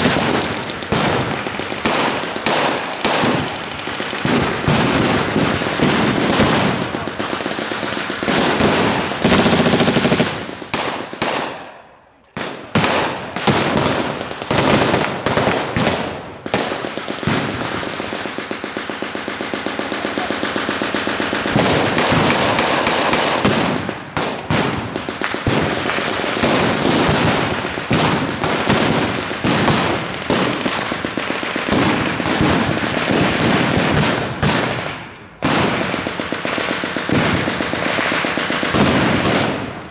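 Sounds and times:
machine-gun firing blanks: 0.0 - 11.4.

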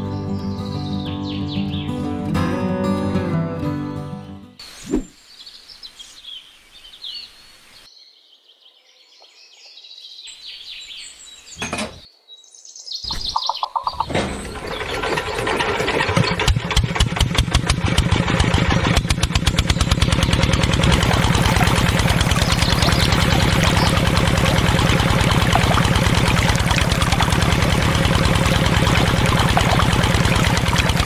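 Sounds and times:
birds chirping: 0.0 - 2.2, 4.6 - 16.5, 19.4 - 31.0
model diesel engine running: 14.0 - 31.0.

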